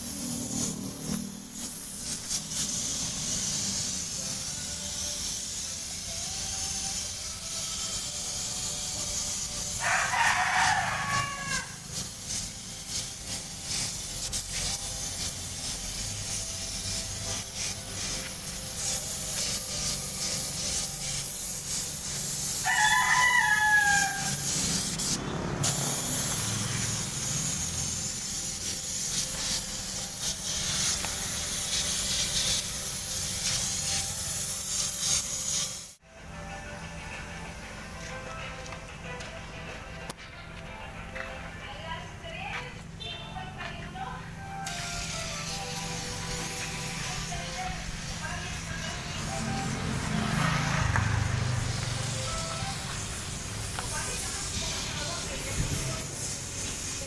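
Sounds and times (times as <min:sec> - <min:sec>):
spray gun hissing: 0:00.0 - 0:36.0, 0:43.8 - 0:57.0
rooster crowing: 0:09.8 - 0:11.8, 0:22.6 - 0:24.6.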